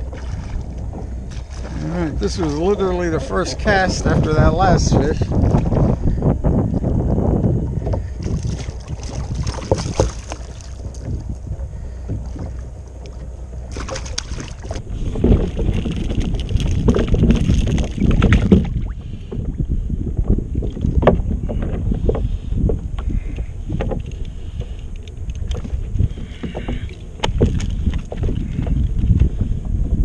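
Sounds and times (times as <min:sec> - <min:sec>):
wind buffeting microphone: 0:00.0 - 0:30.0
fish splashing at water surface: 0:08.2 - 0:10.8, 0:13.7 - 0:18.9.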